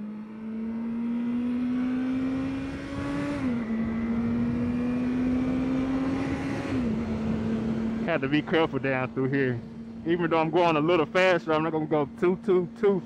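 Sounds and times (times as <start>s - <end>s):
motorcycle engine accelerating: 0.0s - 12.8s
wind noise: 2.3s - 8.0s.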